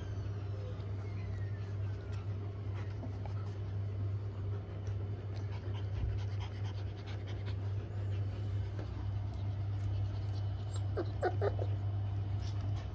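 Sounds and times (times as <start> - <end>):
dog panting: 4.2 - 11.6.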